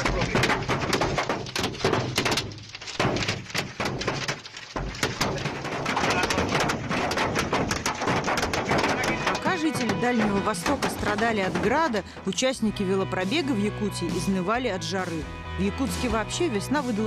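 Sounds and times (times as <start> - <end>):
hail pelting a car: 0.0 - 12.4.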